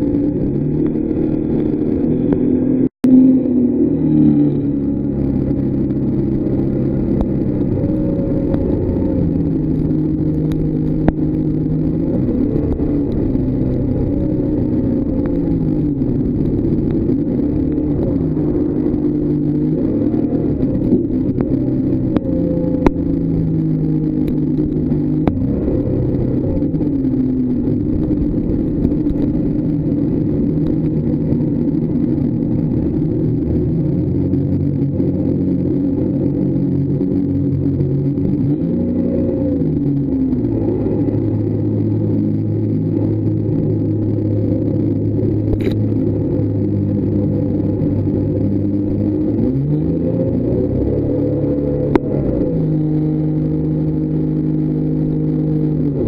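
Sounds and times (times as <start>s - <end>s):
boat engine running hard: 0.0s - 56.0s.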